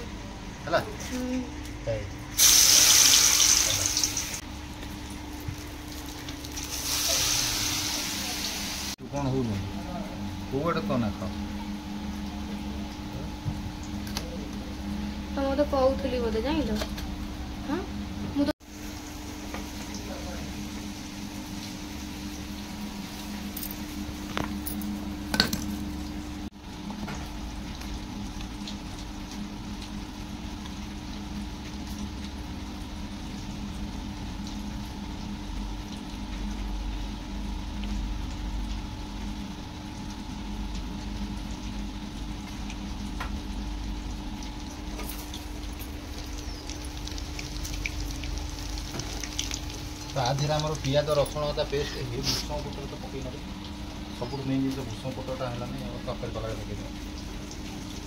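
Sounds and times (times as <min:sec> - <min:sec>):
food sizzling in hot oil: 0:02.4 - 0:09.1, 0:39.4 - 0:58.0.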